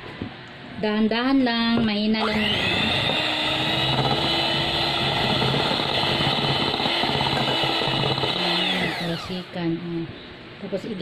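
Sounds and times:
electric hand mixer running: 2.2 - 9.6.

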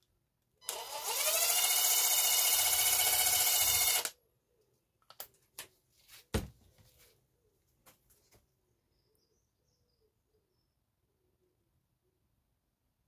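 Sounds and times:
impact driver motor whining: 0.6 - 4.1.

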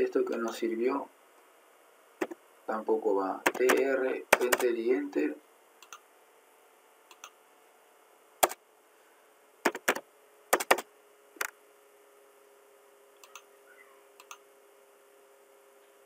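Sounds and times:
faint steady hum: 0.0 - 16.0
computer mouse clicking: 3.5 - 4.7, 5.8 - 6.0, 7.1 - 7.4, 10.6 - 10.8, 13.2 - 13.5, 14.2 - 14.4.

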